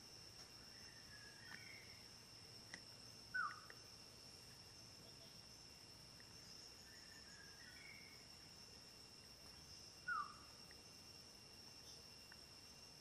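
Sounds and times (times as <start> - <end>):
high-pitched insect drone: 0.0 - 13.0
soft bird chirps: 0.6 - 3.9, 6.2 - 8.5, 9.4 - 10.9.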